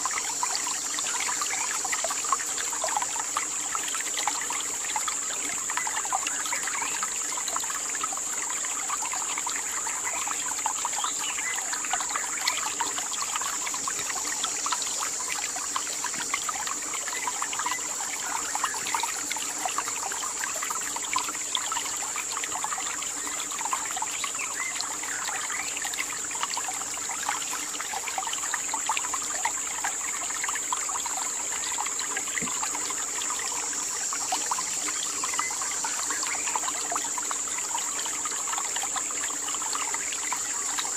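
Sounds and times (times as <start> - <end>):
trickling water: 0.0 - 40.9.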